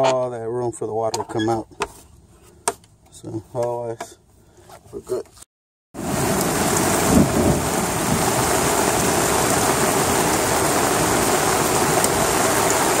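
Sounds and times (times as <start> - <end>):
heavy rain on lawn and pavement: 6.0 - 13.0.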